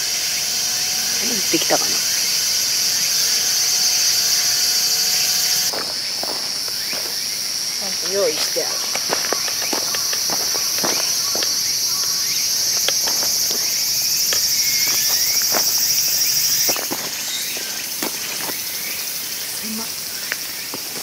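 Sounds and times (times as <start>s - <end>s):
high-pitched insect chorus: 0.0s - 21.0s
footsteps on gravel: 5.7s - 21.0s.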